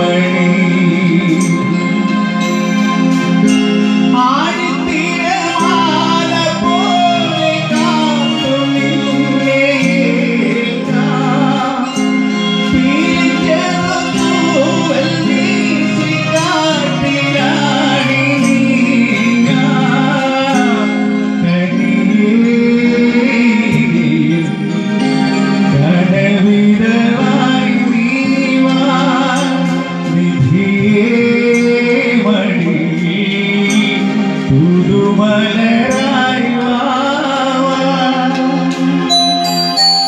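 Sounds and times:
drum kit: 0.0s - 21.0s
keyboard: 0.0s - 40.0s
live band music: 0.0s - 40.0s.

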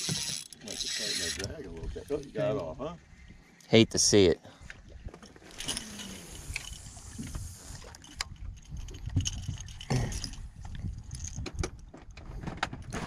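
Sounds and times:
wind rumbling on microphone: 4.8s - 13.0s.

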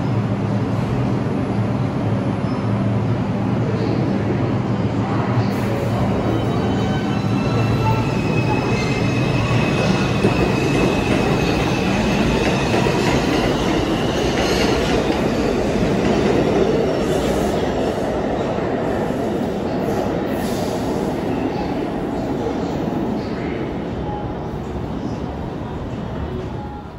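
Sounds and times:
subway train rumbling on rails: 0.0s - 26.9s.

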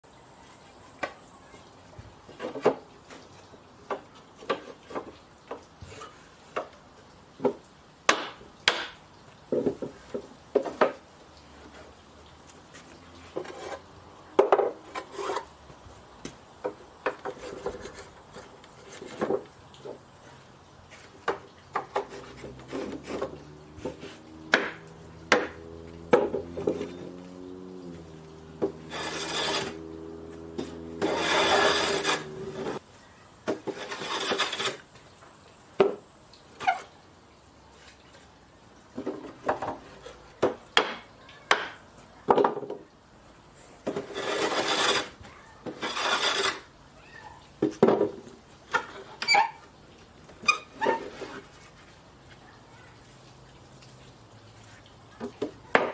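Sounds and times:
boards set down on bench: 2.3s - 2.9s, 7.4s - 11.0s, 14.4s - 15.1s, 18.9s - 20.0s, 21.2s - 27.2s, 35.8s - 36.0s, 38.9s - 42.9s, 47.6s - 49.0s, 55.2s - 55.9s
hand plane scraping board: 13.3s - 13.8s, 14.9s - 15.5s, 28.5s - 29.9s, 30.5s - 32.8s, 33.5s - 34.8s, 43.9s - 46.6s.

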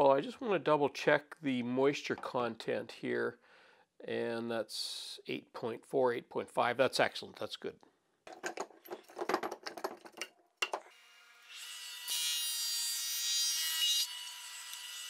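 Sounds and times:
metal clamps rattling: 8.3s - 10.9s.

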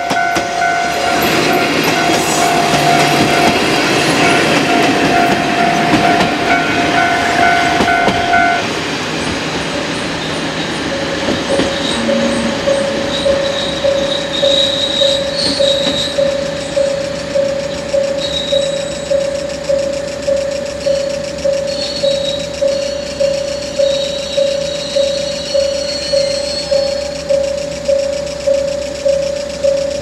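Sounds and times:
lower-pitched bell ringing: 0.0s - 8.7s, 11.5s - 30.0s
level crossing warning bell: 0.0s - 8.8s, 10.8s - 30.0s
train wheels clattering on rails: 0.0s - 30.0s
brakes squealing: 9.9s - 27.3s.

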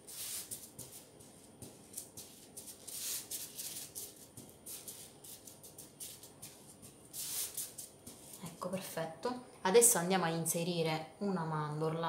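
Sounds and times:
sugar grains scraping: 0.0s - 8.4s
parchment paper rustling: 0.0s - 8.5s.

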